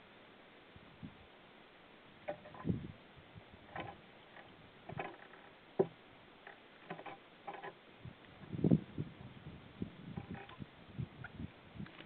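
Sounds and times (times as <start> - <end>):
woodpecker tapping on wood: 3.7 - 7.8.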